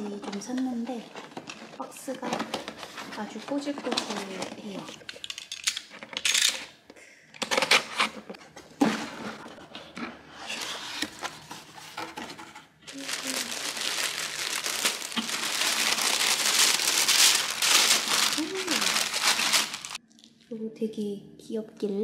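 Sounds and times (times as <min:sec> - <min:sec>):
tissue paper crinkling: 0:12.8 - 0:20.0.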